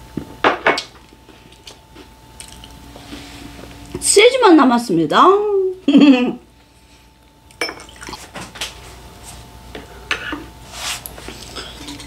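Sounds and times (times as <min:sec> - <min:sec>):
tableware clinking on ceramic plate: 0:07.6 - 0:07.9.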